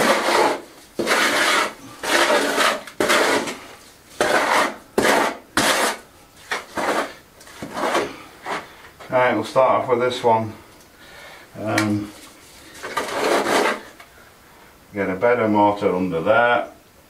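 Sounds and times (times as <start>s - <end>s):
trowel scraping mortar in bucket: 0.0s - 8.7s, 12.6s - 14.0s.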